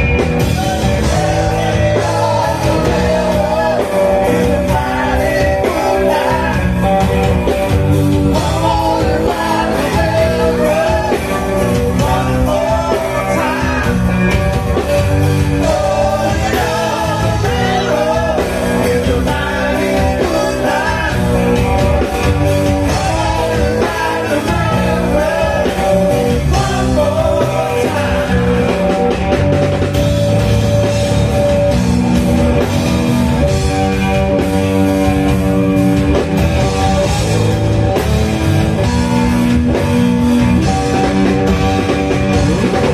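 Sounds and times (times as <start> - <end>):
drum kit: 0.0 - 42.9
electric guitar: 0.0 - 42.9
keyboards: 0.0 - 42.9
man singing: 0.8 - 7.2, 8.3 - 14.4, 15.5 - 29.2.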